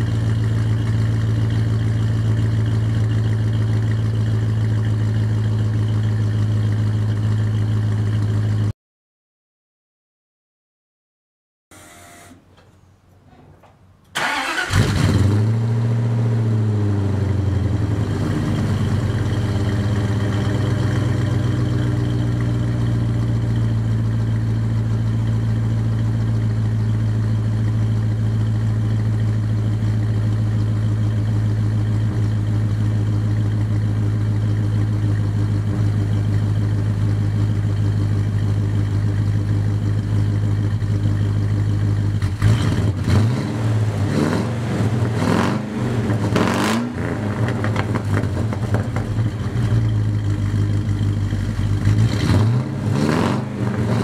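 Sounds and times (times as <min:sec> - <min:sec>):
car engine starting and idling: 0:00.0 - 0:08.7, 0:11.7 - 0:54.0
engine revving: 0:14.2 - 0:21.4, 0:42.2 - 0:49.9, 0:51.8 - 0:54.0.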